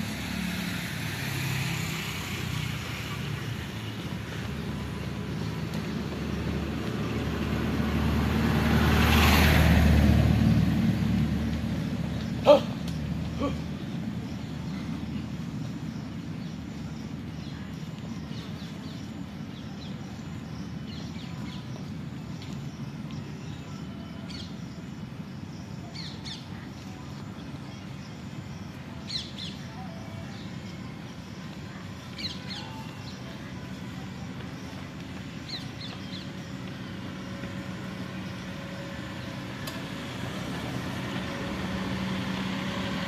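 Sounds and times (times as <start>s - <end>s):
low roadside rumble: 0.0s - 43.0s
short bird calls: 12.3s - 13.8s.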